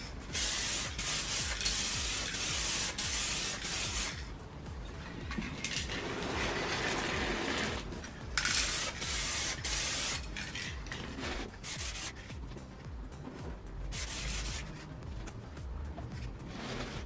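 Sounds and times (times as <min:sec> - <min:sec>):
aerosol can spraying: 0:00.0 - 0:04.3, 0:05.6 - 0:12.4, 0:13.9 - 0:14.9
cardboard box rubbing on floor: 0:11.0 - 0:11.6, 0:16.3 - 0:17.0.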